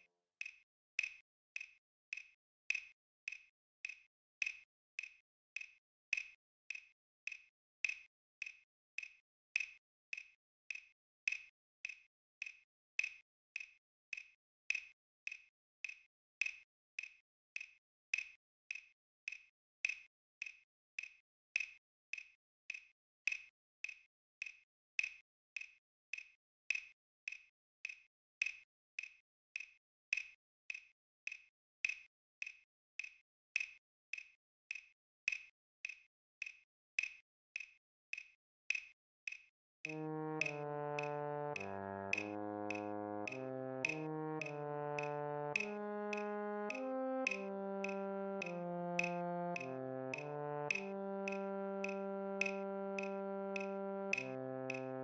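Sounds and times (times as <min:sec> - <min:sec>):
electronic metronome clicks: 0:40.4 - 0:46.3, 0:47.3 - 0:52.0, 0:53.0 - 0:54.9.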